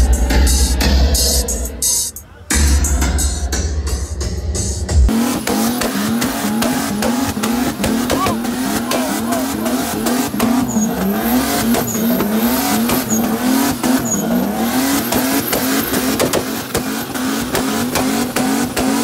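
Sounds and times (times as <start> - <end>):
car engine revving: 0.0 - 19.0
engine crackles: 5.1 - 19.0
spinning tyres hissing: 5.1 - 19.0.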